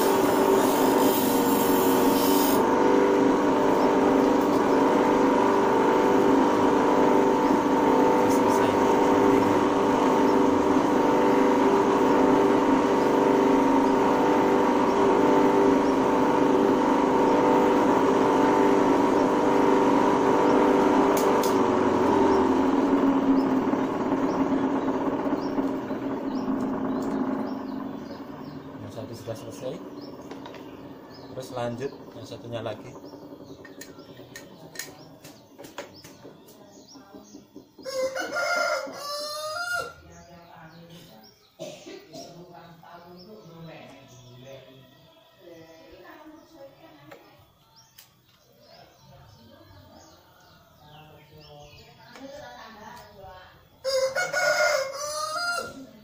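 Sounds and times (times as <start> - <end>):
electric grinder motor whine: 0.0 - 36.1
birds chirping: 0.0 - 56.0
rooster crowing: 37.8 - 40.0, 53.8 - 56.0.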